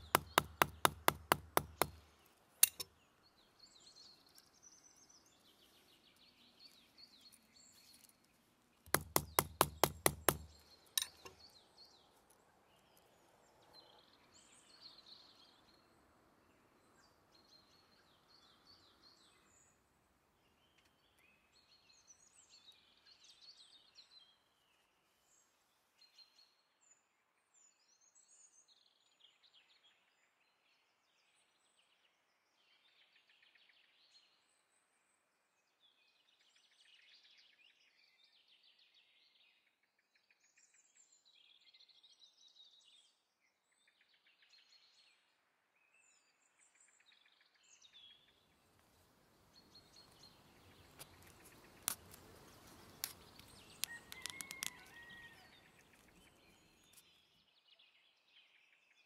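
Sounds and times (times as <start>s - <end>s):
axe tapping metal rivet: 0.0s - 2.0s, 2.6s - 2.9s, 8.9s - 11.4s
faint birdsong: 0.0s - 59.0s.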